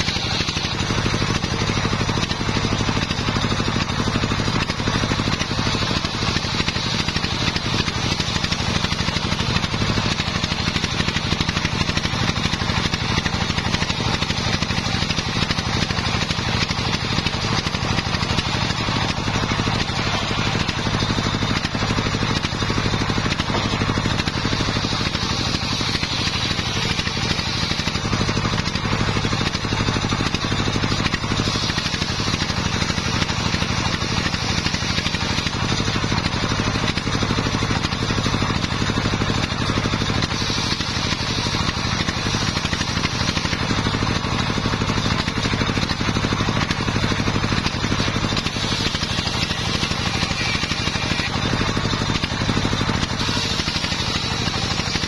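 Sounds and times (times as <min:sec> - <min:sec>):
saw bench engine running: 0:00.0 - 0:55.0
saw blade hissing in wood: 0:13.1 - 0:36.2, 0:39.3 - 0:55.0.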